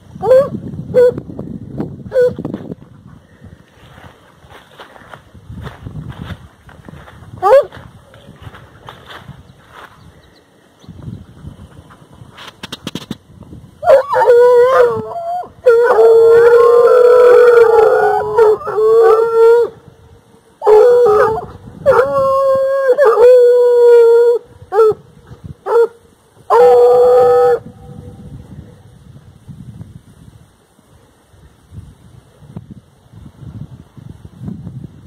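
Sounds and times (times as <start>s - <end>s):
hounds baying and howling: 0.2s - 1.2s, 2.1s - 2.4s, 7.0s - 9.9s, 13.8s - 19.9s, 20.6s - 25.0s, 25.6s - 27.9s.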